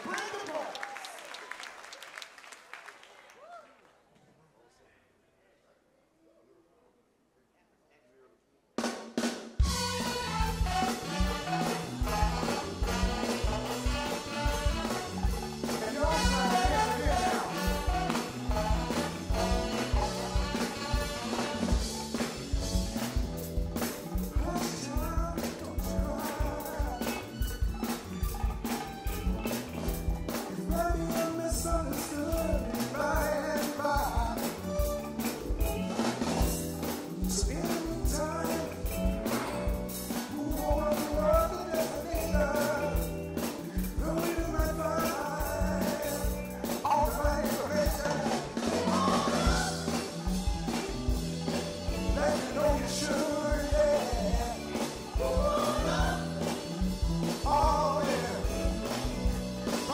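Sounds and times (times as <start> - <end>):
drum kit beat: 8.8 - 59.9
bass line: 9.6 - 59.9
person singing: 10.8 - 21.5, 24.2 - 27.8, 30.4 - 35.0, 37.2 - 59.9.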